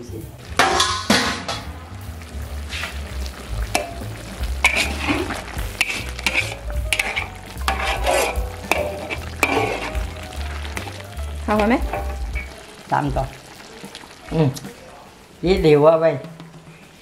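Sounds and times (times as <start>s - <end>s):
food sizzling: 0.0s - 17.0s
spatula scraping a pan: 2.6s - 3.1s, 3.7s - 10.4s.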